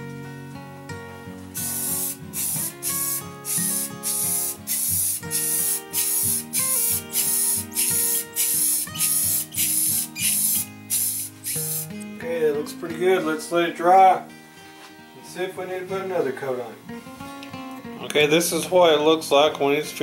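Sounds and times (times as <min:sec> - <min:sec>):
acoustic guitar music: 0:00.0 - 0:20.0
aerosol spray hissing: 0:01.6 - 0:12.0.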